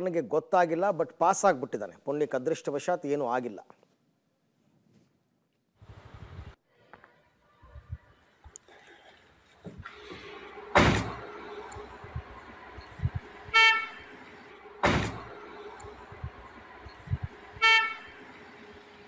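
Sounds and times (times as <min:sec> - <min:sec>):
vehicle horn toots: 0:13.5 - 0:14.2, 0:17.6 - 0:18.3.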